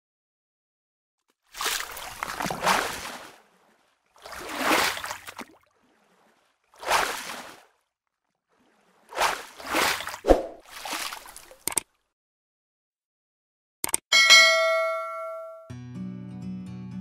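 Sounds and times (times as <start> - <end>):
liquid splashing and sloshing: 1.2 - 12.1.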